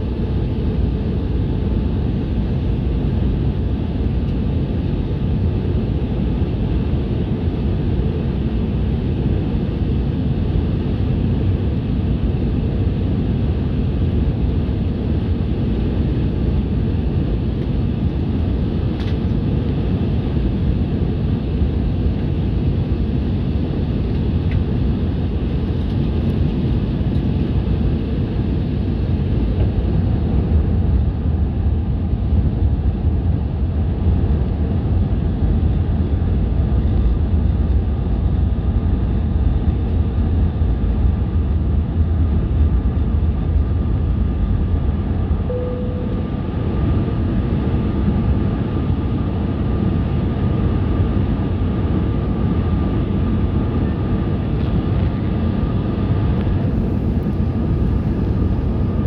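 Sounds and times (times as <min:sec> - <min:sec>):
aircraft engines and airflow rumble: 0:00.0 - 0:59.0
thin steady whine: 0:40.8 - 0:59.0.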